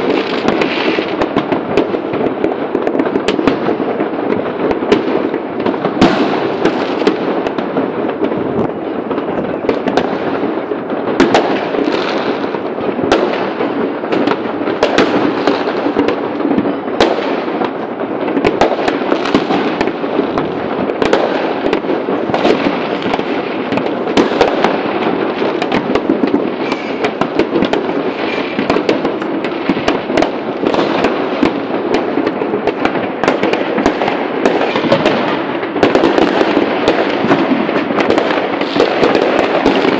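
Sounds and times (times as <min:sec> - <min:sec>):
firecracker bangs: 0:00.0 - 0:39.9
fireworks crackling and popping: 0:00.0 - 0:39.9.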